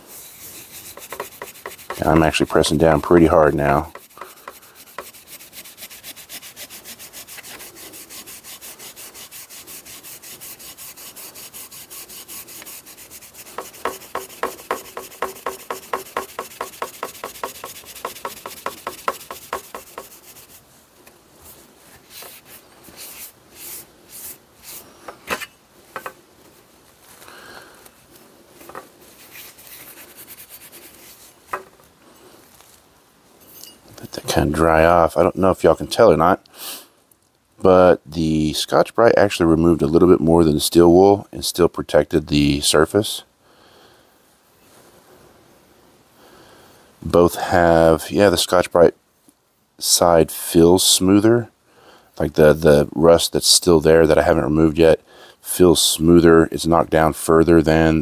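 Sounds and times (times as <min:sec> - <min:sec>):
steel wool scrubbing metal: 0:00.0 - 0:20.7
cloth wiping metal: 0:00.0 - 0:20.8, 0:28.6 - 0:31.7.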